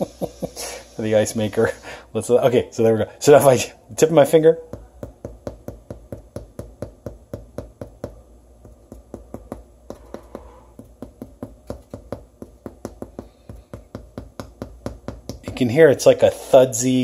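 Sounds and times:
fingertip tapping bread crust: 4.6s - 15.8s.

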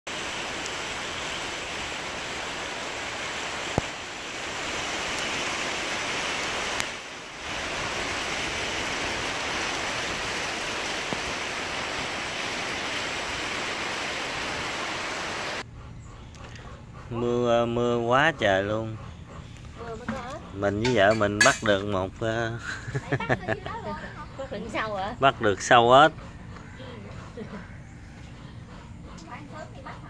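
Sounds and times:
heavy rain on leaves: 0.1s - 15.6s.

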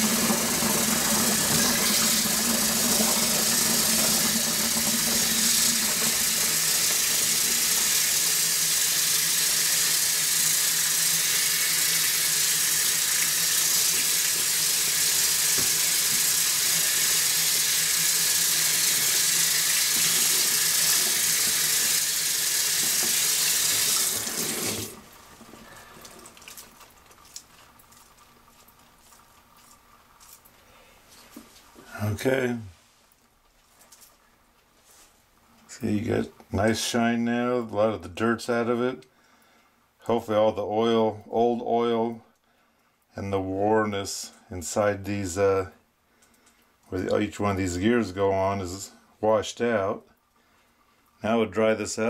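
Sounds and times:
faucet water running: 0.0s - 30.5s.

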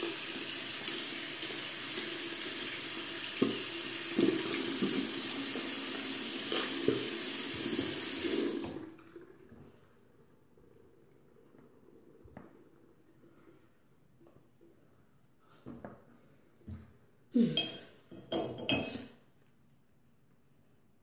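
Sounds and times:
water running into sink: 0.0s - 13.0s.

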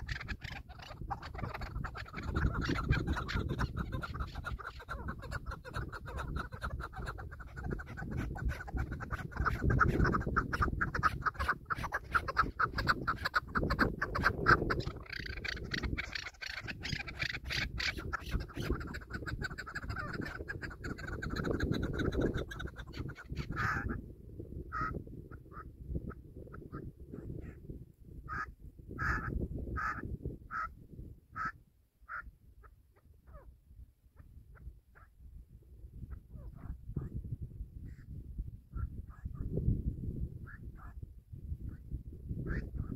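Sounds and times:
partridges clucking: 0.0s - 18.8s
wind rumble on microphone: 0.0s - 42.9s.

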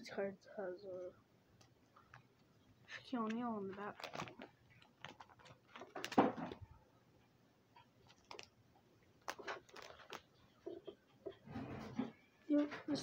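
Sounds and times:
plastic sleeve pages rustling: 1.6s - 6.7s, 7.8s - 8.6s, 9.2s - 11.0s.

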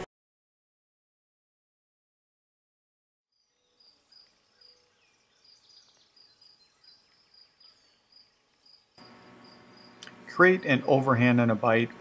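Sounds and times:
insect chirping: 3.3s - 10.9s
faint outdoor ambience: 3.4s - 12.0s.

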